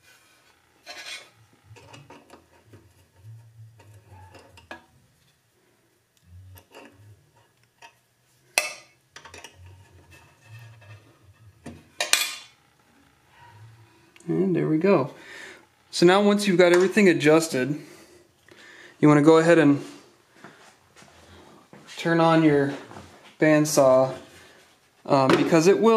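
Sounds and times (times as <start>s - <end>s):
small metal clicks and scraping: 0.8s - 5.3s, 6.5s - 11.2s.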